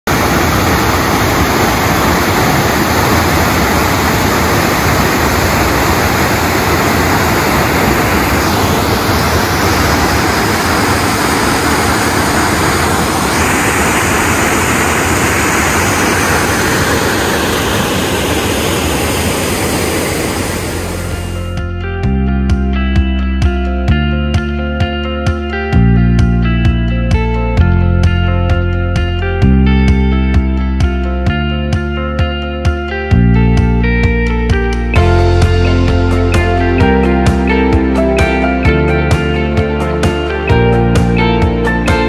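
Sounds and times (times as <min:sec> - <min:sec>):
waterfall rushing into pool: 0:00.0 - 0:21.6, 0:34.9 - 0:42.0.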